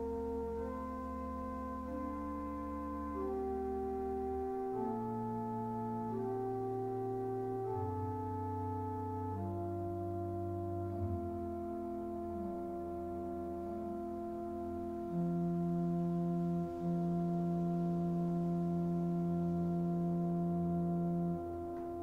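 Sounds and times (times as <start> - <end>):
organ playing sustained chords: 0.0 - 22.0.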